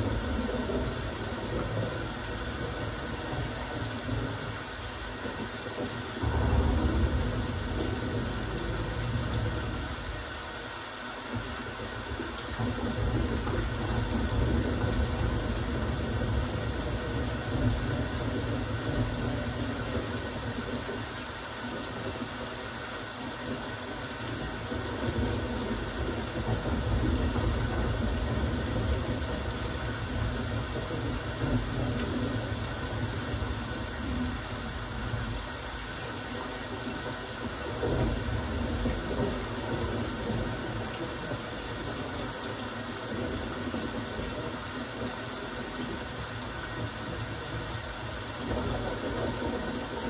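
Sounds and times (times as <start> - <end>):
rain hiss: 0.0 - 50.0
low rumble: 6.2 - 10.2.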